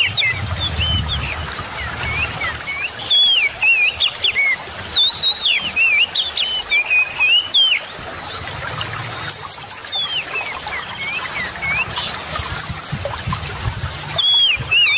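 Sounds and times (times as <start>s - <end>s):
river rushing: 0.0s - 14.9s
songbird singing: 0.0s - 14.9s.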